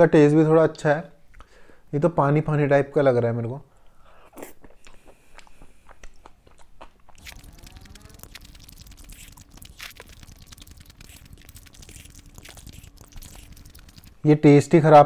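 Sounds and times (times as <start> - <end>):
close chewing with mouth smacks: 4.2 - 14.3.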